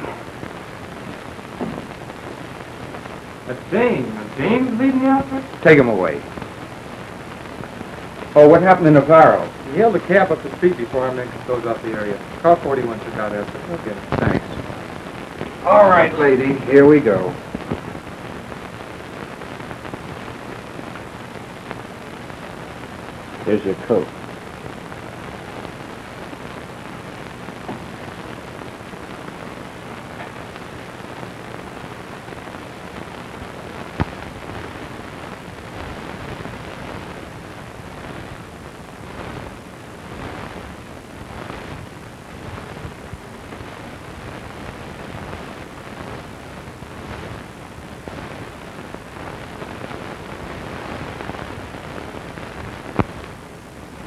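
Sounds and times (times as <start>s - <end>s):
steady noisy hiss: 0.0s - 54.0s.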